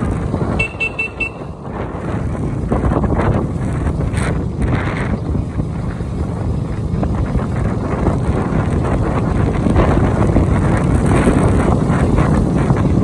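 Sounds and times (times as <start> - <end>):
vehicle motor running: 0.0 - 13.0
wind buffeting microphone: 0.0 - 13.0.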